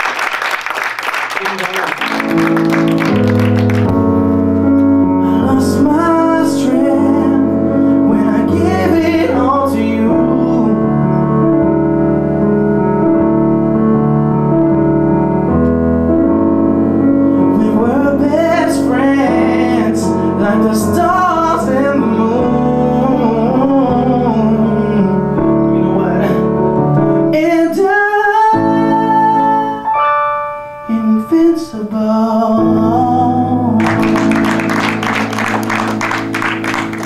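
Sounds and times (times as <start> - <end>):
stage piano chords: 0.0 - 37.0
man singing: 5.1 - 11.2, 17.4 - 30.0, 30.9 - 35.2.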